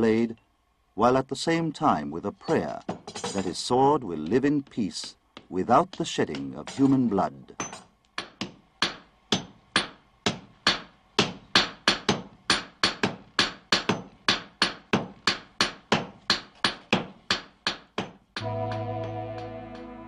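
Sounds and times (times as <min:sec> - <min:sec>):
hammer striking steel on anvil: 0:05.8 - 0:19.9.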